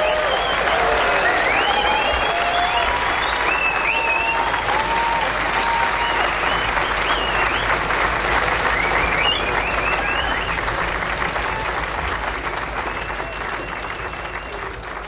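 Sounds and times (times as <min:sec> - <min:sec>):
high whistles: 0:00.0 - 0:04.8, 0:05.8 - 0:07.8, 0:08.6 - 0:10.7, 0:12.8 - 0:14.7
audience applauding: 0:00.0 - 0:15.0.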